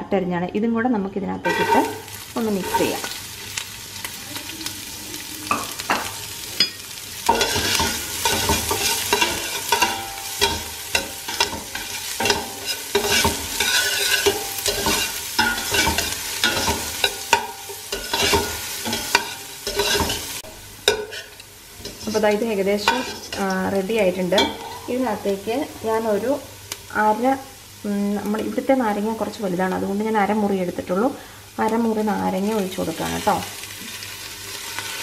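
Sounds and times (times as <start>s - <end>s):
vegetables sizzling in butter: 1.4s - 35.0s
metal spoon scraping a pot: 1.5s - 2.0s, 7.3s - 23.7s, 24.4s - 25.1s.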